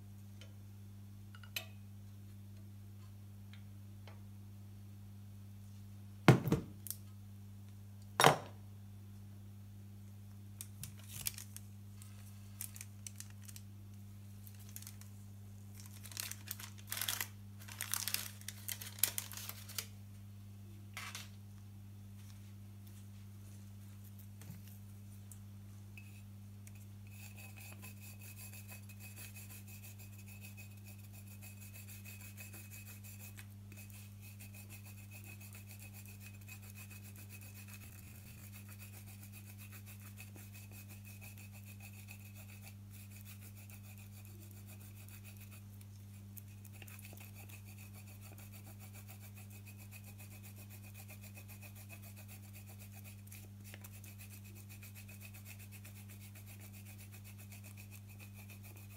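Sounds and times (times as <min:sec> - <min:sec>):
chocolate rasping on a grater: 0:15.8 - 0:19.7, 0:26.0 - 0:58.9.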